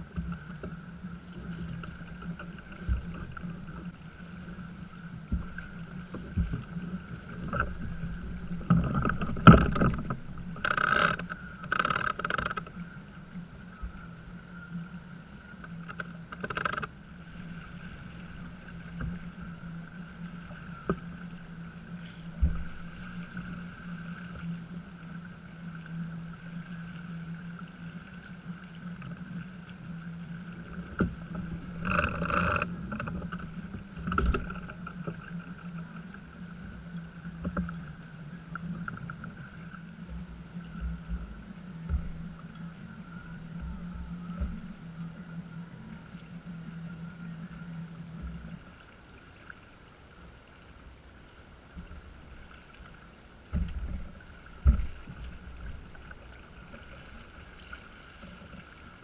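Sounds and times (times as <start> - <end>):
steady low hum: 0.0 - 59.0
water washing along hull: 0.0 - 59.0
knocks on boat: 22.4 - 22.8, 40.8 - 42.3, 53.5 - 55.3.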